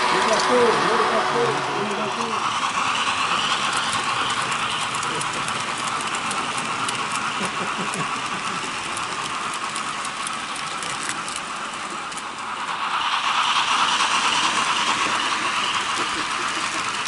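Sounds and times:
model train motors whirring: 0.0s - 17.0s
wheels ticking over rail joints: 0.0s - 17.0s.

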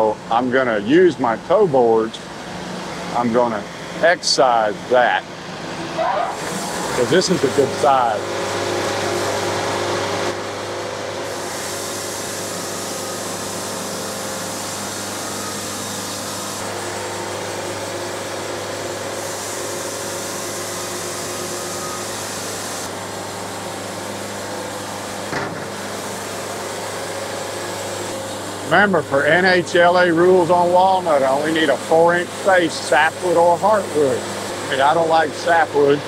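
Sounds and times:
band sawmill cutting log: 0.0s - 36.0s
constant hum: 21.7s - 36.0s.

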